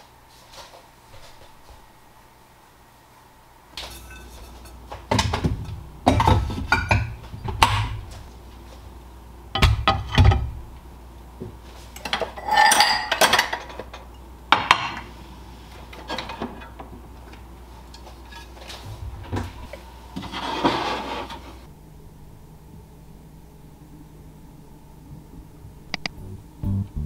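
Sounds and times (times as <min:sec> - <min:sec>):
dishes and cutlery clinking: 0:03.8 - 0:07.9, 0:11.9 - 0:15.1.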